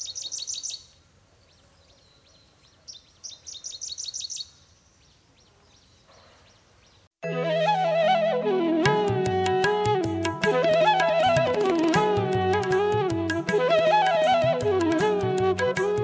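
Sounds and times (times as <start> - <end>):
instrumental music with flute melody: 7.2 - 16.0.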